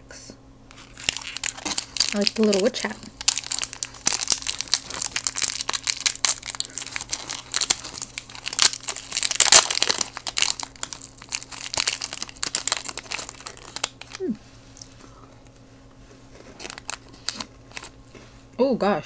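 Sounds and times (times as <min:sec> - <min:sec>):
foil wrapper crinkling and tearing: 0:00.7 - 0:14.2, 0:16.4 - 0:18.0.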